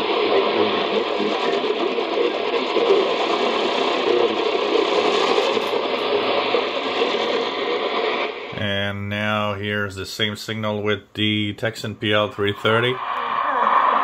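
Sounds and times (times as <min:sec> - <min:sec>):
radio hiss and static: 0:00.0 - 0:14.0
faint radio talk: 0:08.6 - 0:14.0.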